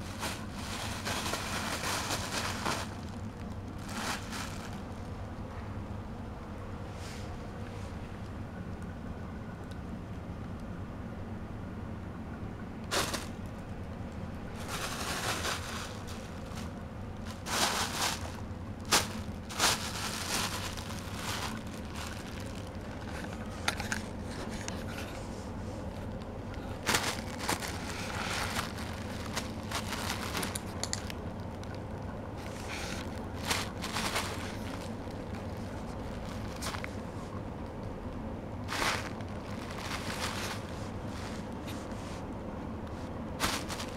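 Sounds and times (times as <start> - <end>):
plastic bag crinkling: 0.0 - 5.2, 12.9 - 13.5, 14.6 - 24.8, 25.9 - 37.0, 38.6 - 41.6, 43.4 - 43.9
steady low hum: 0.0 - 43.9.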